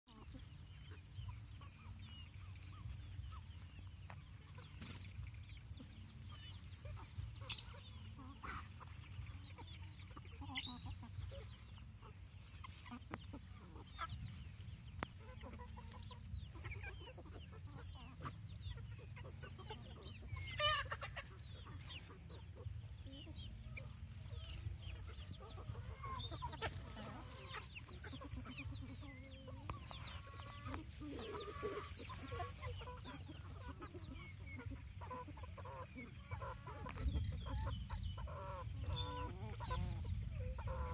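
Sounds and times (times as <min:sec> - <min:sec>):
chickens clucking: 0:00.1 - 0:40.9.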